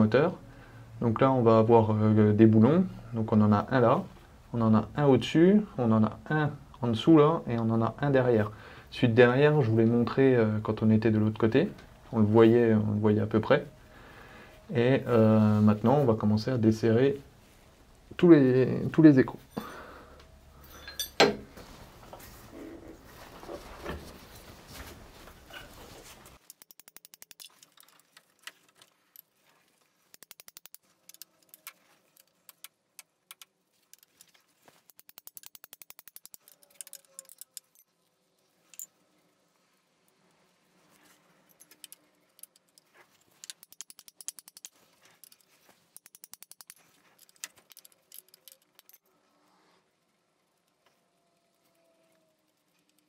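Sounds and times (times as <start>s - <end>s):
ratchet wrench clicking: 26.4s - 27.9s, 30.1s - 32.7s, 33.3s - 37.9s, 41.5s - 49.0s.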